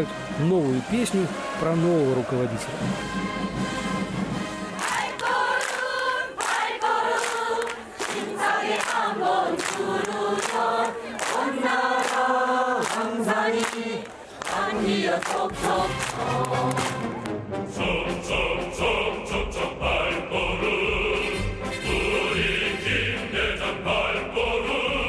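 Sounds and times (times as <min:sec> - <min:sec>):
choir singing: 0:02.0 - 0:25.0.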